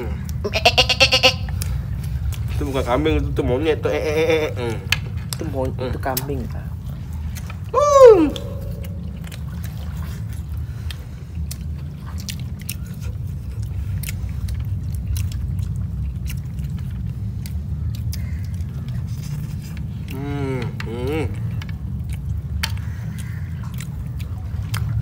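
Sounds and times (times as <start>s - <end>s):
chewing with lip smacks: 0.0s - 25.0s
steady low rumble: 0.0s - 25.0s
short loud voiced cry: 7.7s - 8.8s.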